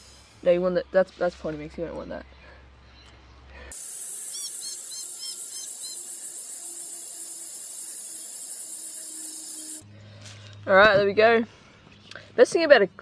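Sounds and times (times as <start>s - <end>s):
short high chirps: 3.7s - 6.7s
hose spraying water onto soil: 3.7s - 9.8s.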